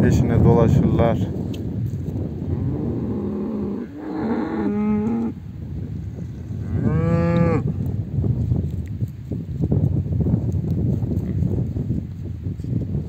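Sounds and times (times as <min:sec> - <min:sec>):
cattle mooing: 0:02.4 - 0:05.4, 0:06.5 - 0:07.6.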